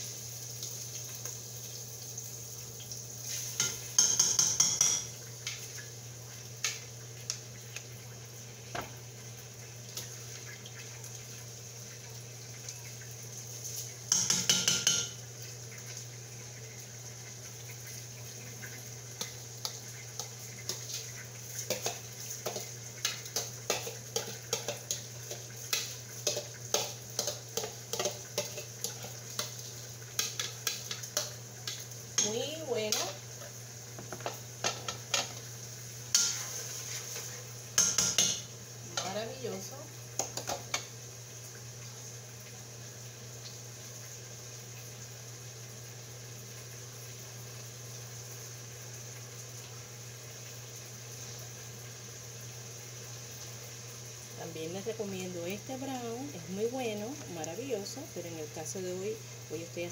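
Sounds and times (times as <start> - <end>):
spatula stirring and scraping pot: 19.7 - 33.2, 36.1 - 38.3.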